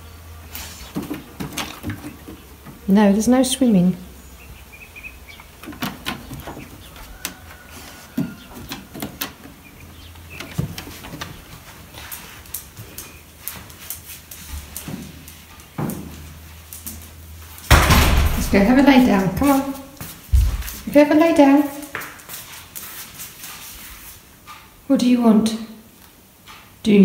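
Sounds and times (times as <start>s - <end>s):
dog claws tapping on floor: 12.0s - 20.9s
sliding door knocks: 17.7s - 19.5s.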